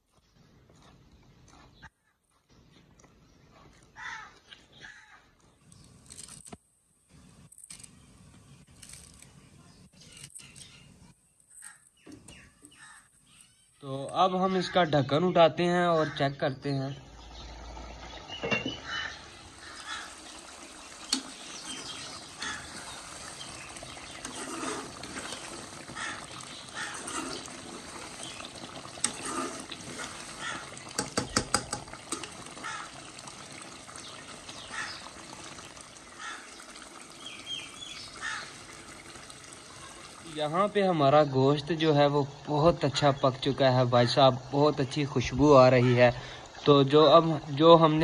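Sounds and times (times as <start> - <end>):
curry bubbling and popping: 16.4 - 48.0.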